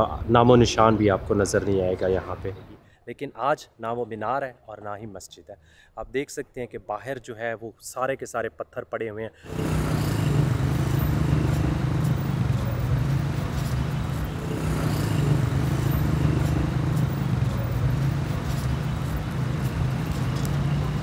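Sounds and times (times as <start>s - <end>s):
city traffic hum: 9.5s - 21.0s.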